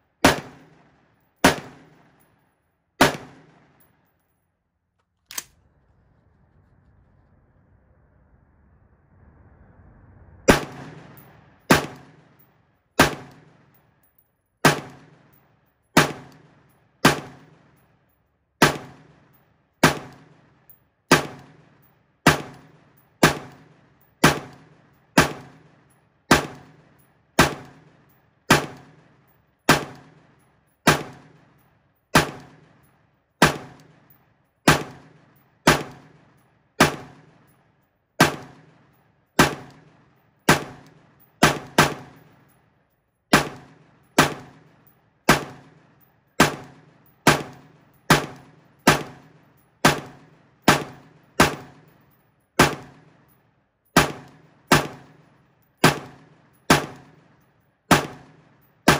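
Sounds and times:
rifle firing single shots: 0.2s - 2.3s, 3.0s - 3.9s, 10.5s - 12.4s, 13.0s - 13.7s, 14.6s - 15.4s, 16.0s - 17.8s, 18.6s - 32.8s, 33.4s - 37.5s, 38.2s - 42.4s, 43.3s - 52.0s, 52.6s - 53.3s, 54.0s - 55.2s, 55.8s - 58.9s
ringing echo of gunshots: 0.2s - 2.4s, 3.0s - 4.0s, 10.5s - 13.8s, 14.6s - 15.4s, 16.0s - 17.8s, 18.6s - 42.5s, 43.3s - 52.0s, 52.6s - 53.4s, 54.0s - 58.9s.

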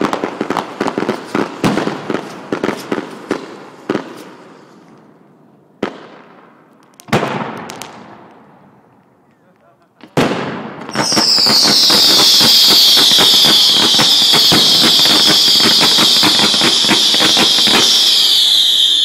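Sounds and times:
firework crackling pops: 0.0s - 5.1s, 5.8s - 8.4s, 10.0s - 19.0s
firework bang: 10.0s - 19.0s
firework hissing screech: 10.9s - 19.0s.

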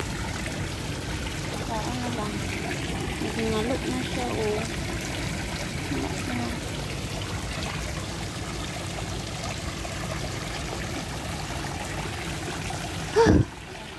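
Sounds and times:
fountain water splashing into pond: 0.0s - 13.9s.

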